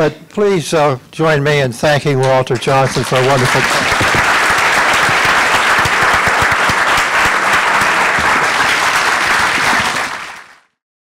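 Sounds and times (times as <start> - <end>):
audience applauding: 2.2 - 10.8.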